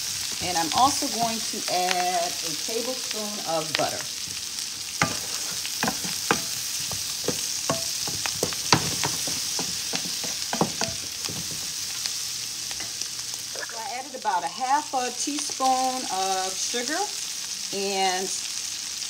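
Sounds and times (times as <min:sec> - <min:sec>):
food sizzling in frying pan: 0:00.0 - 0:19.0
wooden spoon knocking pan: 0:05.0 - 0:11.7.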